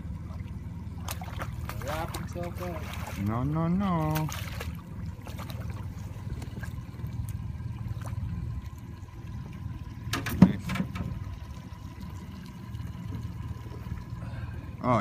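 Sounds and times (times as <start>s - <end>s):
fish splashing in water: 0.0s - 3.3s, 4.0s - 9.2s
steady low rumble: 0.0s - 15.0s.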